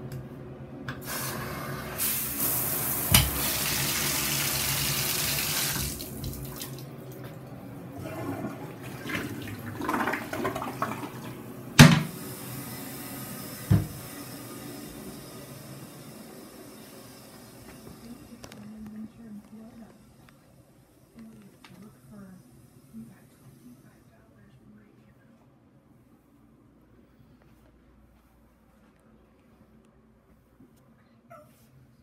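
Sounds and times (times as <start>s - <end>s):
bathtub faucet running: 1.0s - 18.8s.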